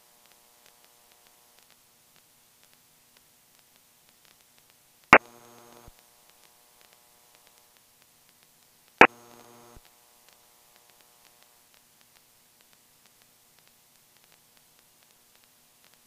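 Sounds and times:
sharp electronic clicks: 0:05.1 - 0:06.0, 0:09.0 - 0:09.9.

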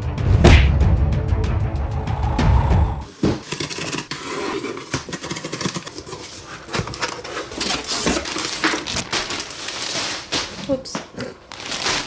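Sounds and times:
paper envelope rustling: 0:03.1 - 0:10.8, 0:11.5 - 0:12.0
paper crackles: 0:03.4 - 0:12.0.

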